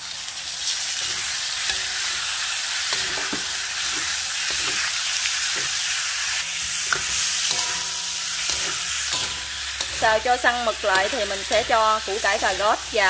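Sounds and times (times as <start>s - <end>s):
food sizzling in hot oil: 0.0s - 13.0s
spatula scraping and tapping pan: 2.9s - 12.6s.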